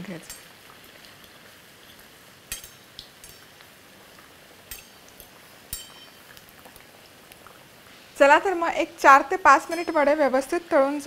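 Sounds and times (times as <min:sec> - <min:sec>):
food deep-frying in oil: 0:00.0 - 0:11.0
metal spoon clinking on pan: 0:01.2 - 0:03.6, 0:04.7 - 0:06.4, 0:09.5 - 0:10.4.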